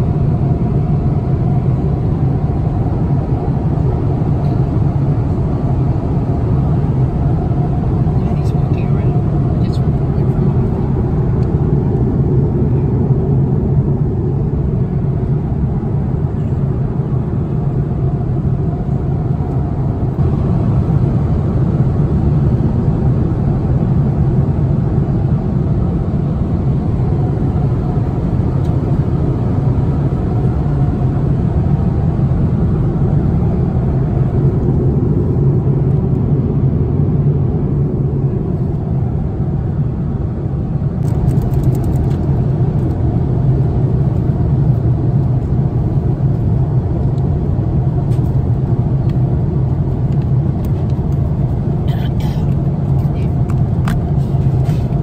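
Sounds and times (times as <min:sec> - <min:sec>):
airplane cabin engine drone: 0:00.0 - 0:55.0.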